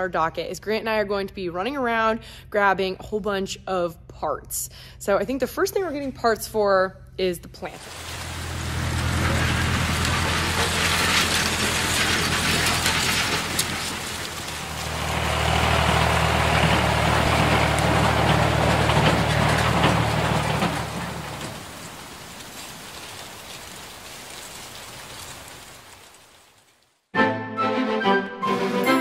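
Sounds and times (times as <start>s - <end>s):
machine humming and rattling: 7.8s - 23.8s.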